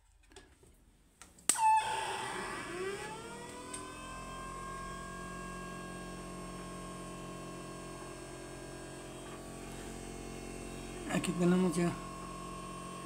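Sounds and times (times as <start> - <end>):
motor whine: 1.6 - 13.0
low steady hum: 2.8 - 13.0.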